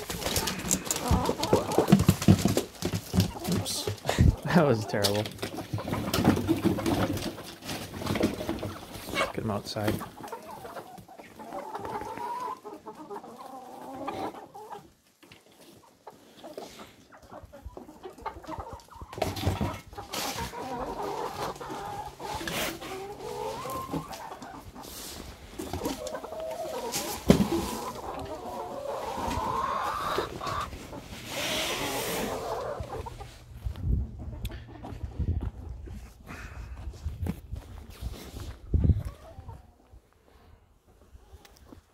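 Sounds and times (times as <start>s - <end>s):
hens clucking: 0.0s - 37.5s, 38.4s - 40.2s.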